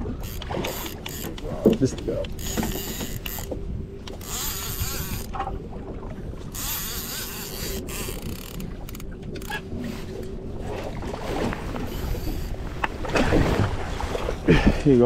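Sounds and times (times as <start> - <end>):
boat engine drone: 0.0 - 14.8
fishing reel whirring and clicking: 0.2 - 1.6, 2.3 - 5.4, 6.5 - 9.6, 11.8 - 12.6.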